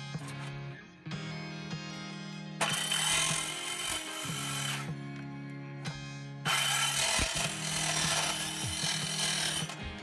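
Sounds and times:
circular saw cutting sheet metal: 0:02.6 - 0:04.9, 0:06.5 - 0:09.8.

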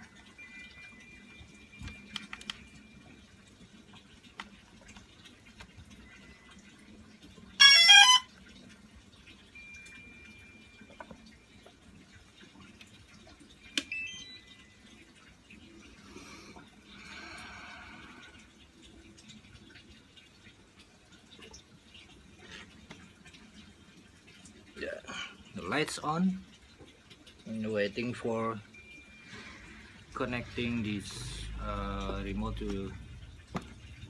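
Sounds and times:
faint rising beeps: 0:00.3 - 0:03.2, 0:13.6 - 0:14.9, 0:28.7 - 0:31.7
electronic start-up tones: 0:13.7 - 0:14.9.

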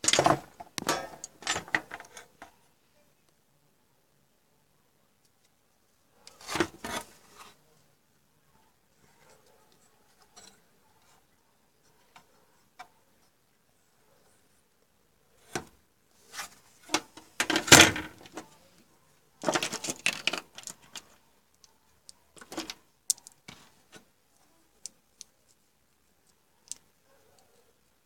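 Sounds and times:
clicking and clattering of components: 0:00.0 - 0:02.6, 0:16.9 - 0:18.4, 0:19.4 - 0:21.7, 0:22.4 - 0:23.7.

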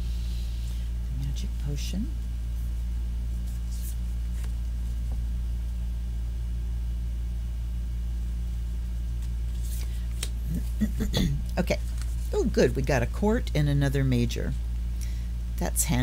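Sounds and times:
low hum: 0:00.0 - 0:16.0
cards tapping and sliding: 0:09.2 - 0:10.7.

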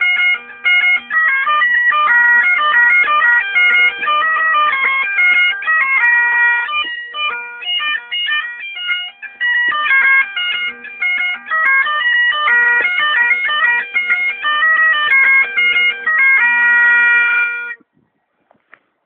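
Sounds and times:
bagpipes playing fast reel: 0:00.0 - 0:17.8.

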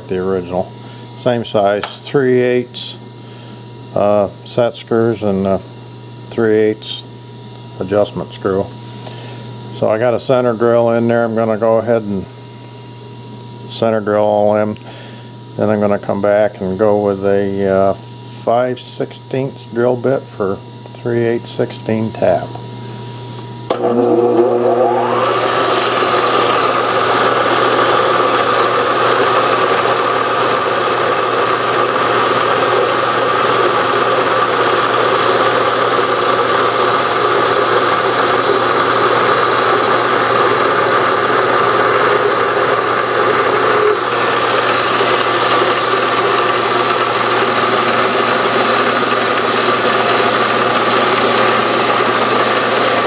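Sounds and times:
milling machine running: 0:23.2 - 0:53.0.

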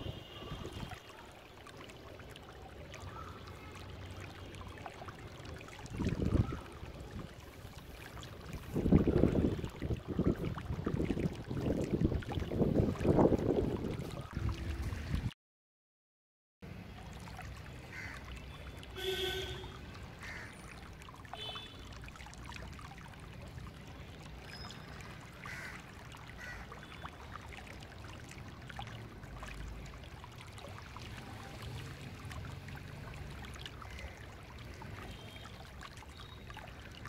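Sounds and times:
wind rumbling on microphone: 0:05.9 - 0:07.4, 0:08.4 - 0:15.3.

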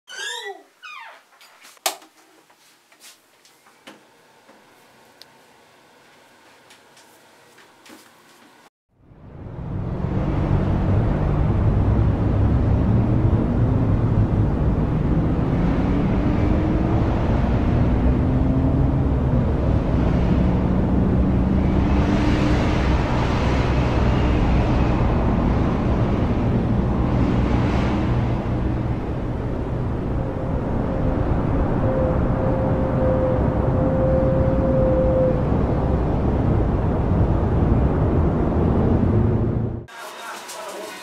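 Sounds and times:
engine rumble: 0:08.9 - 0:39.9
vehicles passing: 0:09.0 - 0:41.0.

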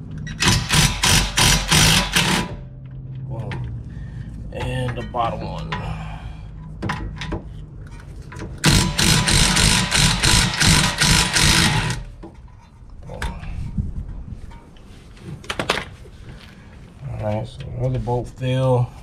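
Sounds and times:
impact wrench hammering: 0:00.3 - 0:02.7, 0:08.6 - 0:12.3.

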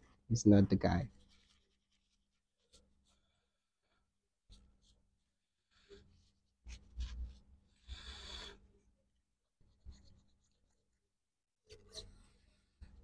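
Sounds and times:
scratchy rubbing and brushing: 0:01.1 - 0:03.2, 0:05.8 - 0:08.5.

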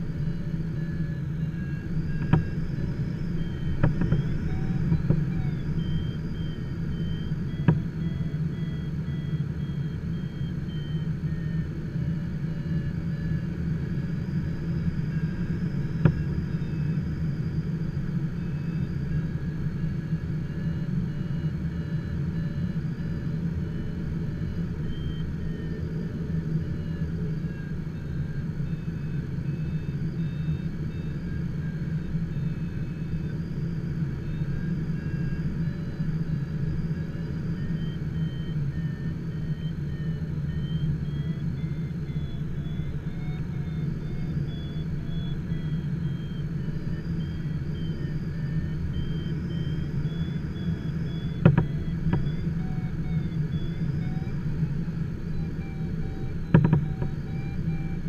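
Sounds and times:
cockpit airflow rumble: 0:00.0 - 0:58.0
faint high wavering tone: 0:00.0 - 0:58.0.

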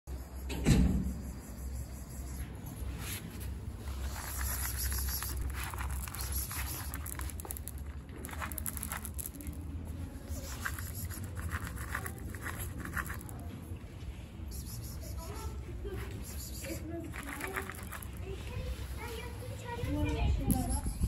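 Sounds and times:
kibble rattling in a cup: 0:03.9 - 0:13.5, 0:17.1 - 0:18.4
kibble scattering on tiles: 0:04.2 - 0:09.7.

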